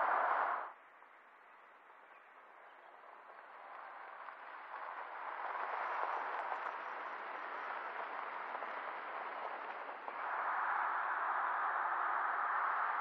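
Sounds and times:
tyres rushing over gravel road: 3.0 - 13.0.

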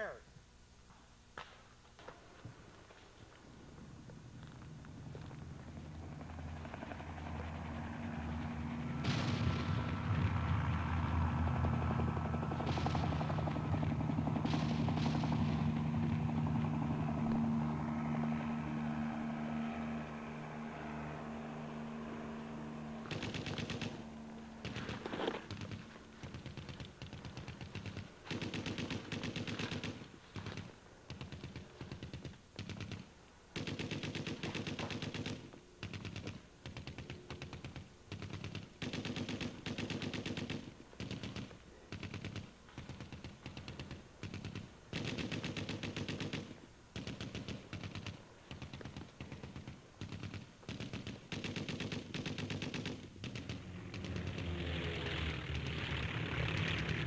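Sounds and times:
paintball markers firing: 11.9 - 16.6, 23.0 - 54.6.

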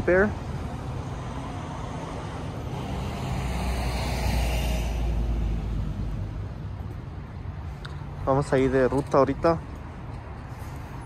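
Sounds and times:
vehicle passing by: 0.5 - 7.4.

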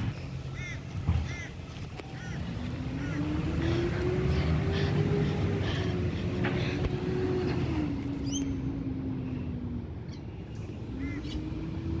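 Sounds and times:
vehicle engine running: 0.0 - 12.0
bird chirps: 8.1 - 8.8.

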